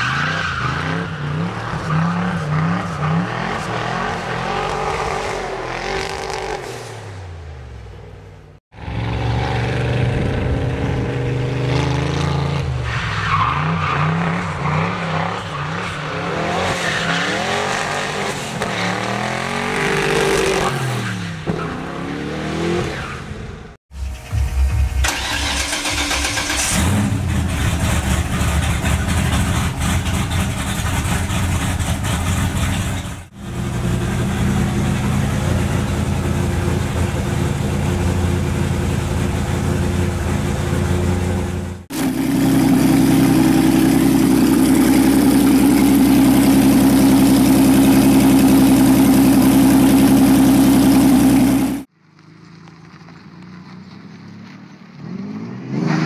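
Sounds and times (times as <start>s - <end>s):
car engine revving: 21.8s - 51.9s
car engine running steadily: 24.1s - 54.9s.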